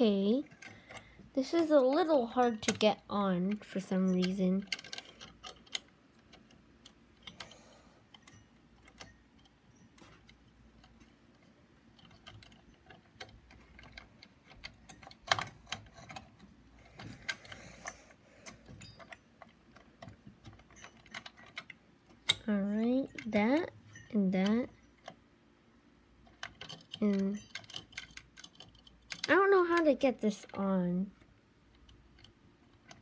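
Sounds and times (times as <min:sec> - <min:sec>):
small plastic and metal clicks: 0:03.5 - 0:22.5, 0:26.2 - 0:33.0.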